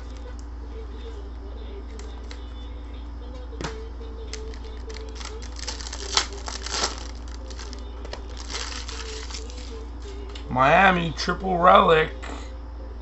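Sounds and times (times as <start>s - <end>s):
steady low hum: 0.0s - 13.0s
foil wrapper crinkling: 4.3s - 9.9s.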